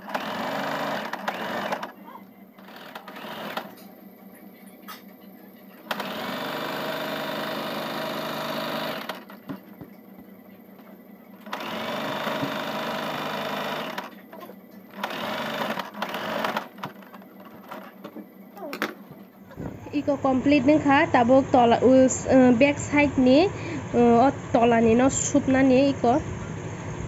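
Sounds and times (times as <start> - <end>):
sewing machine stitching: 0.0 - 2.0, 2.6 - 3.9, 5.9 - 9.5, 11.4 - 18.0.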